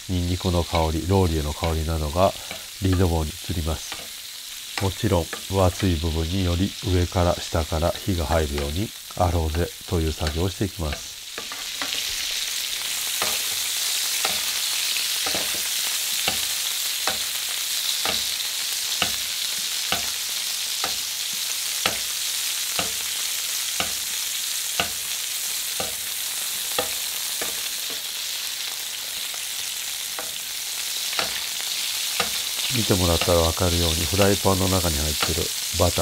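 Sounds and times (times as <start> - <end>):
sizzling in butter in a frying pan: 0.0 - 36.0
spoon knocking against pan: 10.2 - 12.1, 13.2 - 13.6, 15.2 - 17.3, 18.0 - 19.3, 19.9 - 20.2, 21.8 - 22.1, 22.8 - 23.1, 23.8 - 24.1, 24.8 - 25.2, 25.8 - 26.1, 26.7 - 28.1, 31.1 - 31.5, 32.2 - 32.4.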